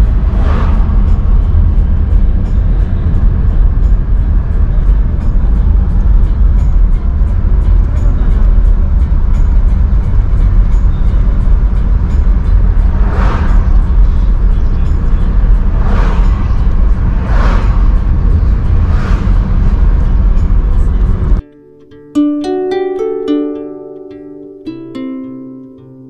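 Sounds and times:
passing car whooshes: 0.0 - 8.0, 9.1 - 21.4
car cabin road rumble: 0.0 - 21.4.

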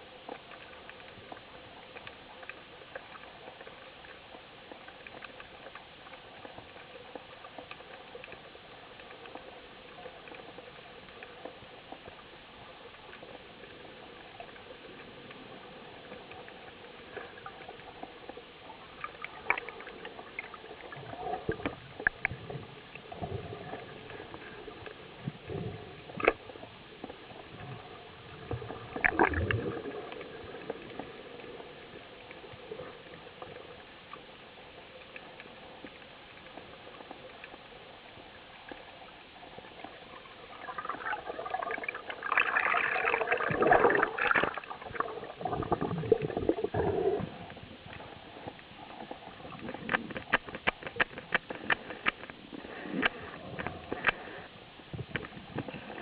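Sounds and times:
bubbling and churning water: 0.0 - 56.0
underwater clicks and knocks: 25.2 - 27.8, 49.4 - 54.3, 54.9 - 56.0.

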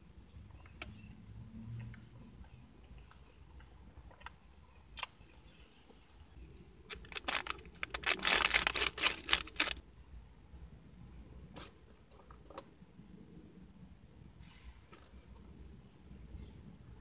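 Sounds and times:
plastic bag crinkling and tearing: 6.9 - 9.8.

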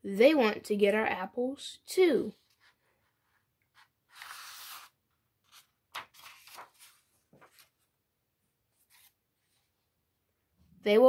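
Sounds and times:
book page swishing: 4.1 - 7.8, 8.8 - 9.2
paper rustles and clicks: 5.5 - 7.8.

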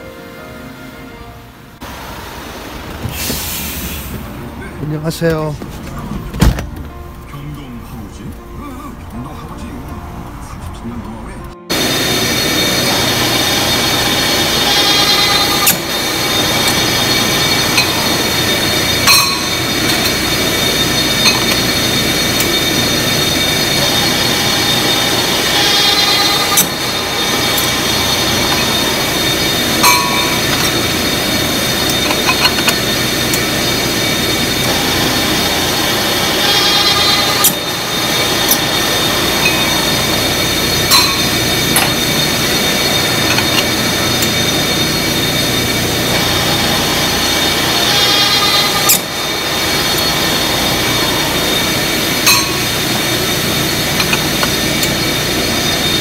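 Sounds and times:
machine hum with whining tones: 0.0 - 56.0
sharp metallic clanks: 12.8 - 34.0, 36.3 - 55.2.

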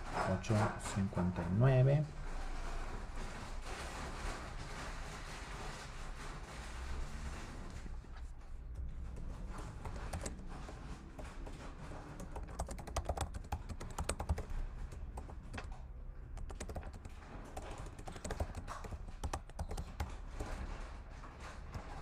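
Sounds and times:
typing on computer keyboard: 9.1 - 15.8, 16.4 - 20.8.

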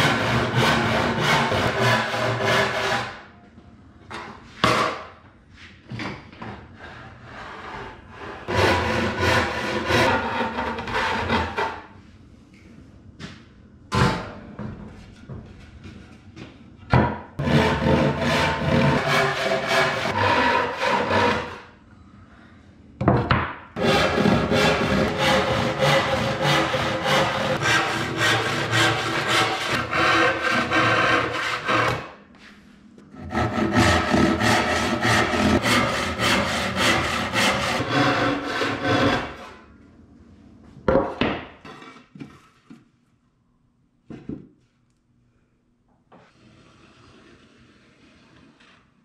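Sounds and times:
hand saw cutting wood: 0.0 - 3.2, 8.5 - 11.8, 17.4 - 21.7, 23.8 - 32.1, 33.1 - 39.6.

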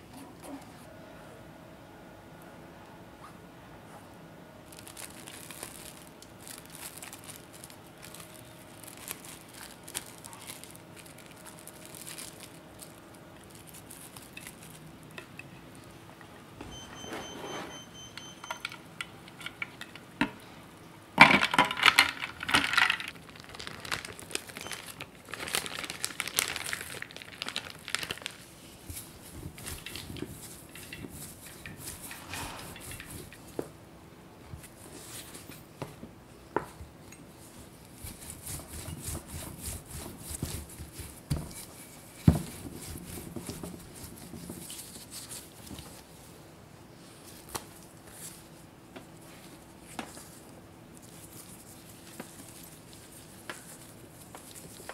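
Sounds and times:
dough rustling: 4.6 - 16.0, 22.2 - 33.8, 34.4 - 54.9
ice clattering in a tray: 21.2 - 24.2.

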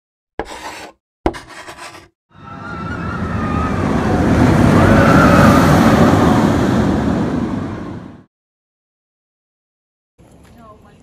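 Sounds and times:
rushing rumble: 2.4 - 8.3.

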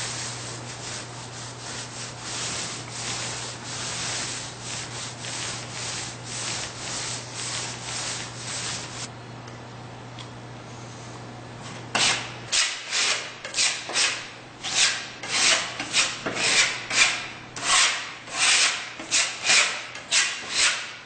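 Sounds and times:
paint roller rubbing on wallboard: 0.0 - 9.1
steady low hum: 0.0 - 17.6.

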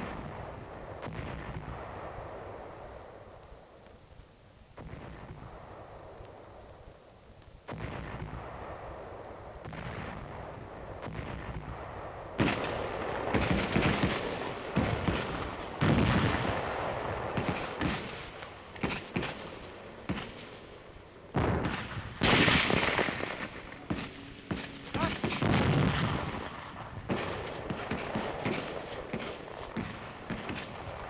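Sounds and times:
gunfire and artillery: 0.0 - 3.3, 4.8 - 6.7, 7.6 - 31.0.

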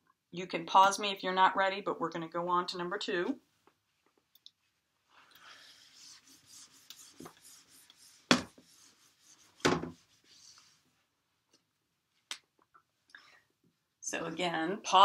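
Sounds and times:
eraser wiping whiteboard: 5.5 - 10.9.

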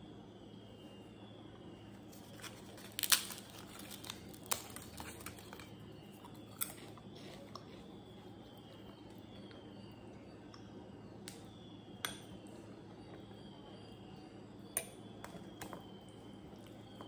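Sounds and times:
crisp papads snapping: 2.1 - 5.7.

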